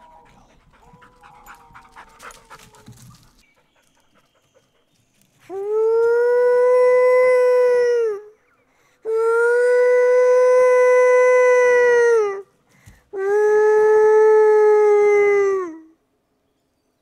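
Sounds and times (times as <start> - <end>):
person howling like a wild dog: 5.5 - 8.4, 9.1 - 12.4, 13.2 - 15.9.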